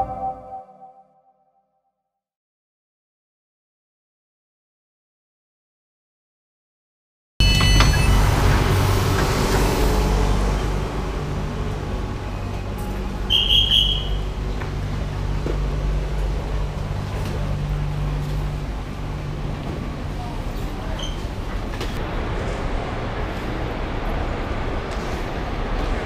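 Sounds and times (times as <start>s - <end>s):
short high electronic beep: 0.0s - 1.3s, 7.4s - 8.4s
low hum and rumble: 7.4s - 26.0s.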